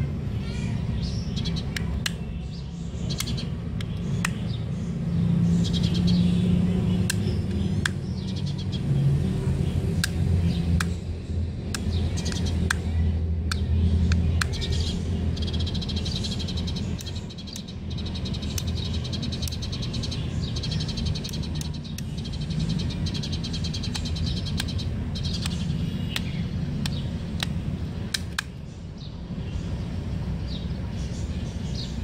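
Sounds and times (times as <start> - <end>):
birds chirping and trilling: 0.0 - 32.0
steady low rumble: 0.0 - 32.0
sharp clicks: 1.4 - 4.7, 7.0 - 8.3, 9.9 - 28.6.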